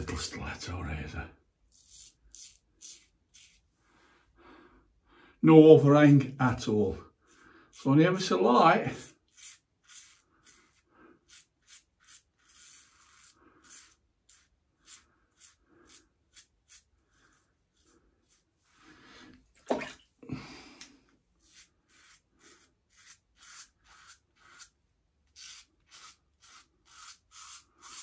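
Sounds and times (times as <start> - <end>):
razor scraping stubble: 1.7 - 3.7, 6.7 - 18.5, 21.4 - 28.0.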